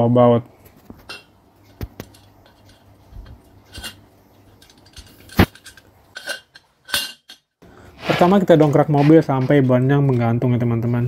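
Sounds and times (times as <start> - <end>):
metal tool clicking and clinking: 3.7 - 7.5.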